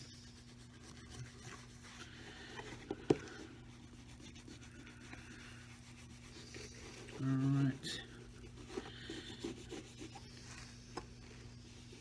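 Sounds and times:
faint steady hum: 0.0 - 12.0
cloth scratching on leather: 3.6 - 12.0.

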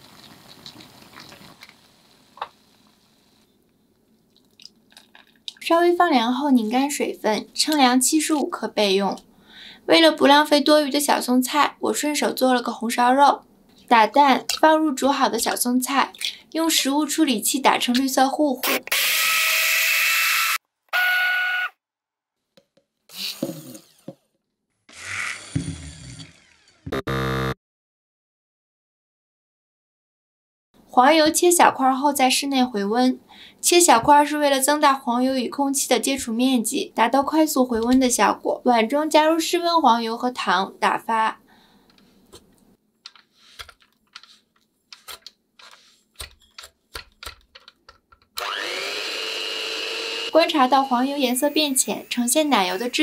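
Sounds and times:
clattering and handling sounds: 4.3 - 5.6, 41.8 - 48.4
food processor motor running: 48.4 - 53.0.

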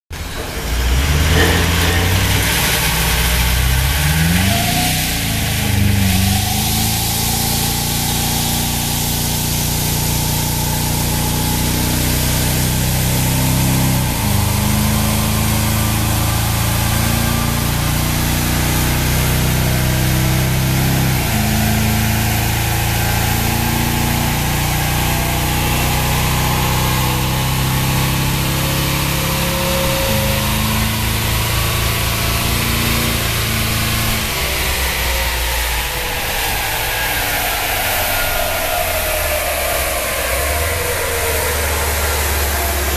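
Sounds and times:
diesel engine under load: 0.1 - 42.9.

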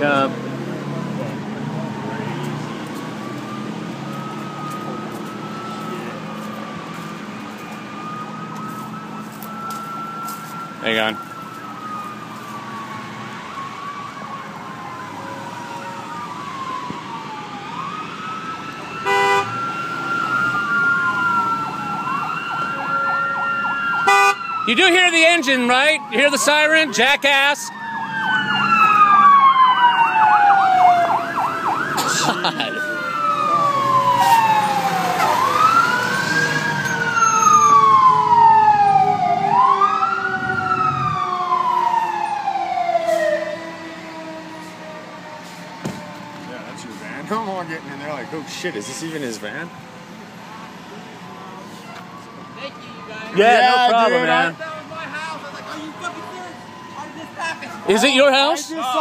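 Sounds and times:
fire engine siren wailing: 0.0 - 59.0
loud horn blast: 19.0 - 19.6, 24.0 - 24.4.

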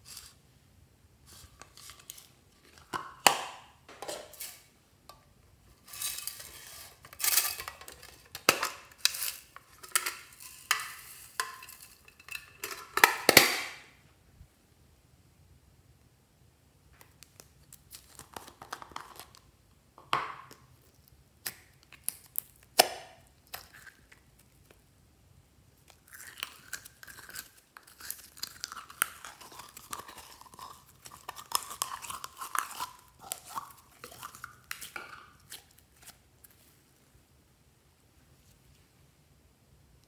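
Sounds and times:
slime crackling and squelching: 25.8 - 36.6.

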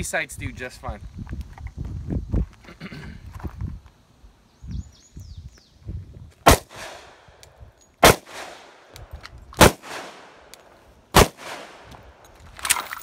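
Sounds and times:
pistol shots with echo: 6.5 - 7.2, 8.0 - 8.9, 9.6 - 10.5, 11.2 - 11.9.

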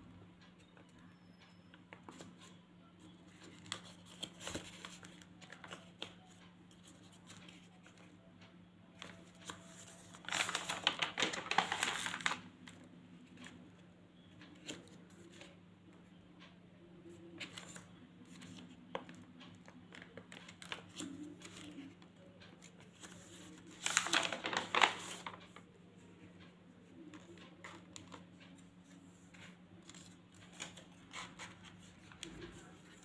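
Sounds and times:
paper rustling: 3.3 - 6.2, 9.0 - 12.4, 19.9 - 25.6
page turning: 9.0 - 12.4, 22.8 - 25.6
paper flaps clicking: 10.2 - 12.8, 18.4 - 25.6.

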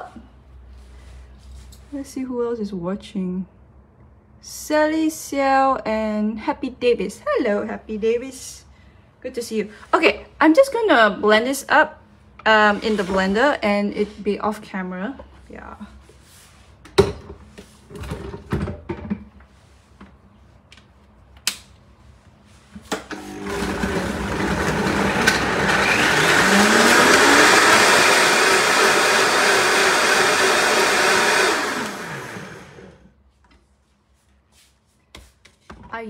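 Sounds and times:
blender running: 23.1 - 33.1.

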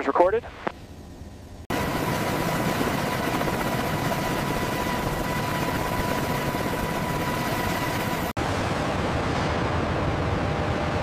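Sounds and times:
helicopter turbine engines idling: 0.8 - 9.0.

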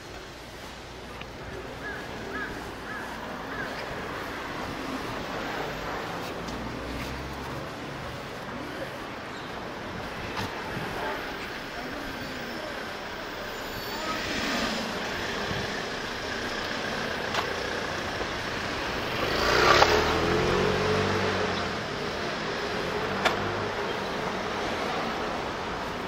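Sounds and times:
street traffic: 0.0 - 26.0
motor scooter passing: 13.6 - 26.0.

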